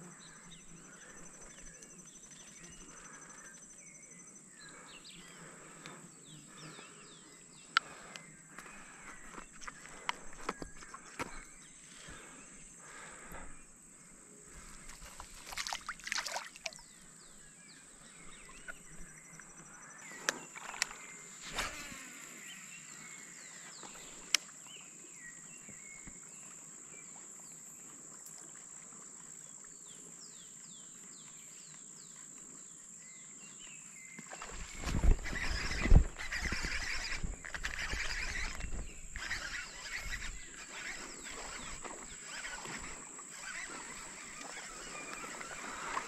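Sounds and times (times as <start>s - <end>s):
bird chirps: 16.7s - 24.1s.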